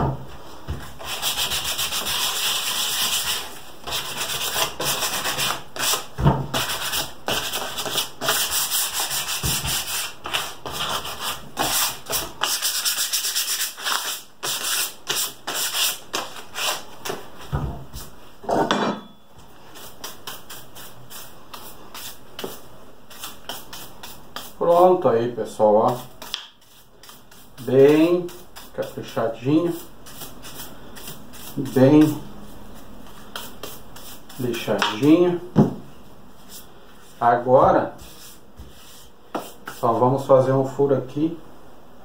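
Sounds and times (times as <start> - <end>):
sandpaper rubbing wood: 1.0 - 16.9.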